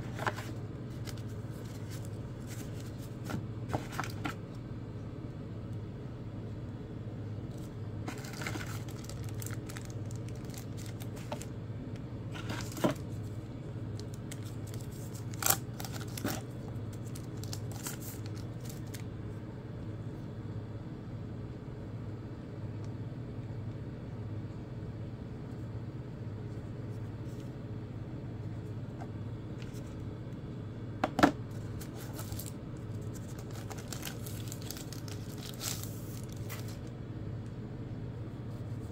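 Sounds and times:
paper and plastic bags rustling: 0:00.0 - 0:04.4, 0:07.5 - 0:11.5, 0:12.3 - 0:13.3, 0:14.0 - 0:19.0, 0:31.5 - 0:36.9
steady low hum: 0:00.0 - 0:38.9.

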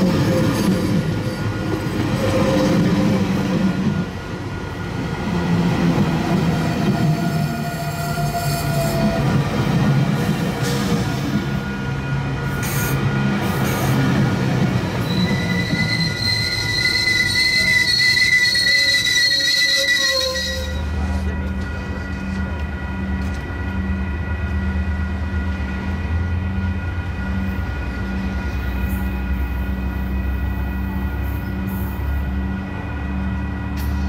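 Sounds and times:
train wheel squeal: 0:00.0 - 0:23.8, 0:26.3 - 0:32.4
diesel locomotive rumble: 0:00.0 - 0:34.0.

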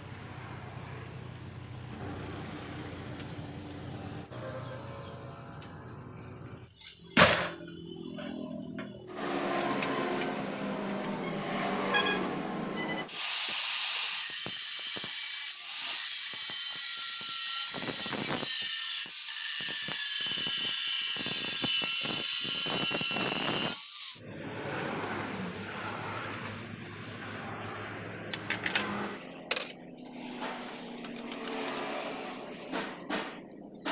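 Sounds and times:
angle grinder cutting steel: 0:07.8 - 0:24.3.

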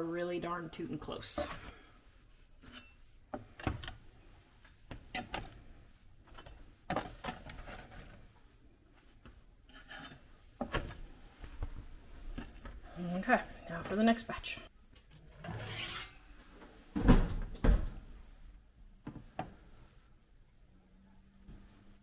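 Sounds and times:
spatula scraping baking mat: 0:09.6 - 0:10.5, 0:15.4 - 0:16.4.

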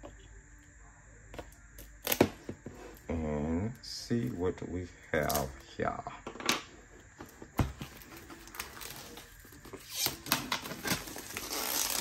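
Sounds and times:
packaging rustling: 0:07.2 - 0:12.0.

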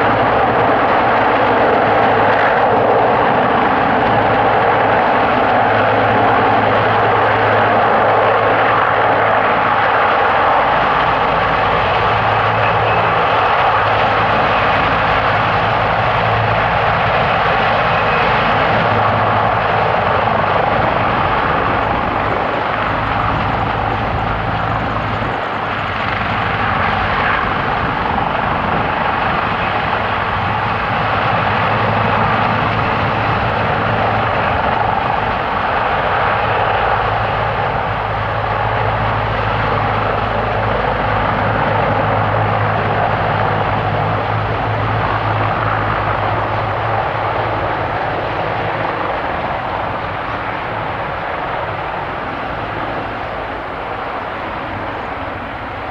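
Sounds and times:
helicopter engines and rotor: 0:00.0 - 0:55.9.

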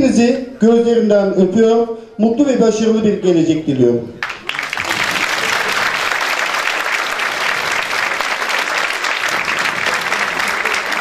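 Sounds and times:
audience applauding: 0:04.2 - 0:11.0.

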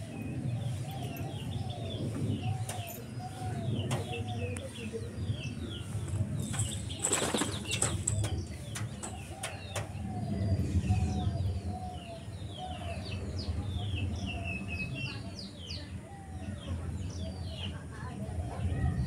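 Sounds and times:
small birds chirping: 0:00.0 - 0:19.0
pigeon wings flapping: 0:06.6 - 0:08.4.

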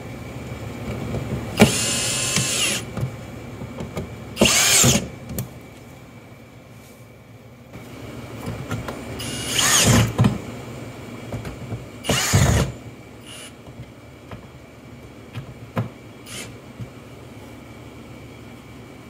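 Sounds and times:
cordless drill driving screws: 0:01.6 - 0:02.9, 0:04.4 - 0:05.1, 0:09.2 - 0:10.2, 0:12.0 - 0:13.6, 0:16.3 - 0:16.6.

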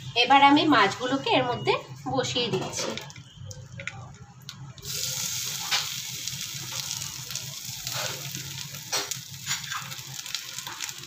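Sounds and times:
fish parcels sizzling in frying pan: 0:04.8 - 0:11.0
parcels tapping in pan: 0:07.8 - 0:11.0.

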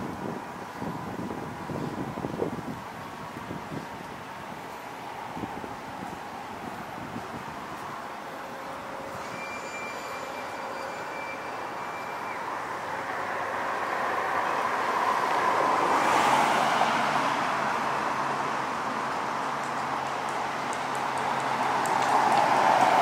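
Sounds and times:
faint thin whistling tones: 0:09.1 - 0:12.5.

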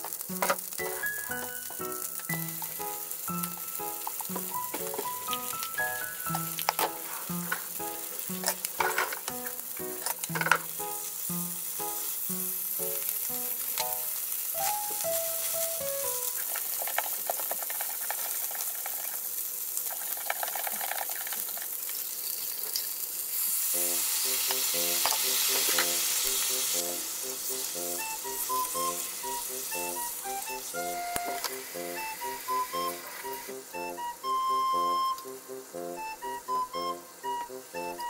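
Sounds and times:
chopsticks turning fish: 0:00.0 - 0:19.1
fish sizzling in a pan: 0:00.0 - 0:38.0.

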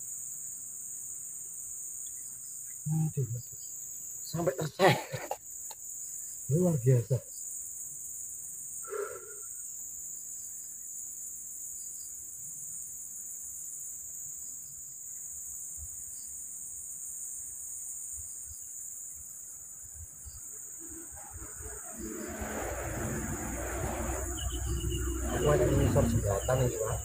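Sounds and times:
insects buzzing: 0:00.0 - 0:27.0
faint low bumps: 0:21.1 - 0:27.0.

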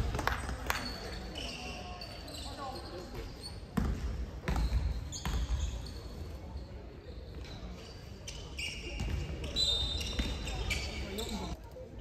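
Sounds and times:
basketball bouncing on wooden floor: 0:03.8 - 0:05.5.

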